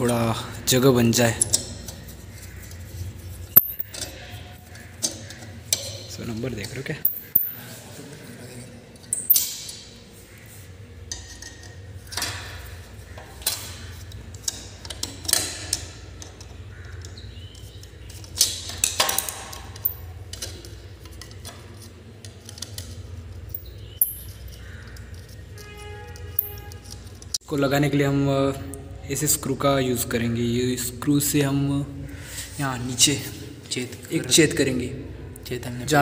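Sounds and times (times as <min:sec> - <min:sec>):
screwdriver clinking on metal plate: 0:03.5 - 0:07.7, 0:09.0 - 0:10.0, 0:18.3 - 0:21.9, 0:23.5 - 0:27.3.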